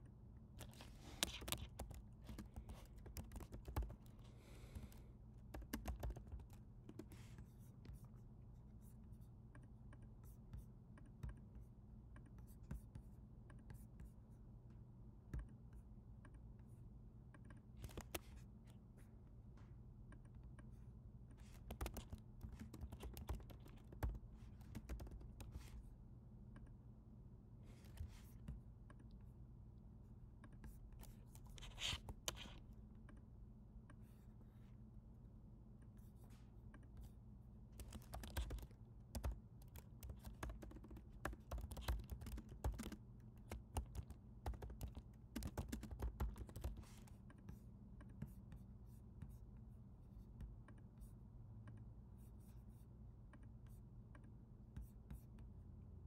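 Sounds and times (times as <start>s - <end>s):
faint low hum: 0.0s - 56.0s
keyboard typing: 0.6s - 7.2s, 21.4s - 25.8s, 37.8s - 47.4s.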